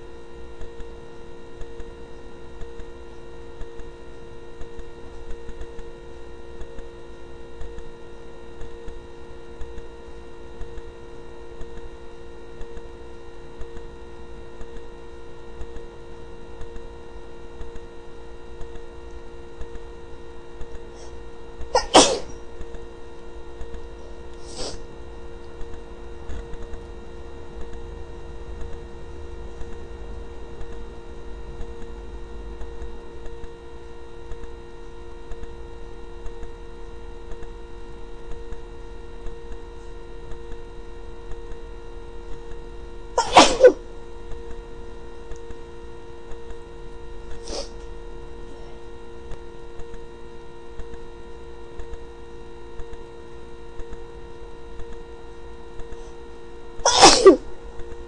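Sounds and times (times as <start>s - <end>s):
steady low hum: 0.0s - 58.0s
person sneezing: 21.8s - 22.3s, 24.4s - 24.8s, 43.2s - 43.8s, 47.4s - 47.8s, 56.8s - 57.5s.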